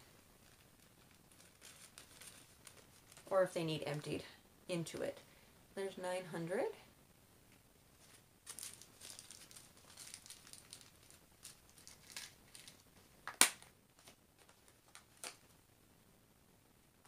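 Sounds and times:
plastic bag crinkling: 0.4s - 4.1s, 8.0s - 13.0s.

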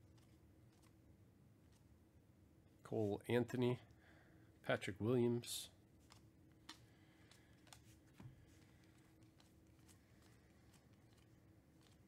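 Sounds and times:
trading cards flipping: 0.1s - 1.0s, 6.0s - 12.0s.

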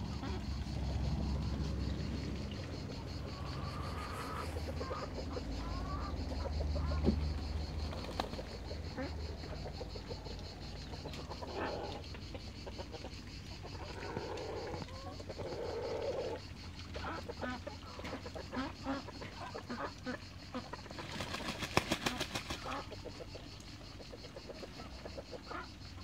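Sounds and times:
fowl calling and clucking: 3.3s - 7.2s, 9.0s - 21.0s.

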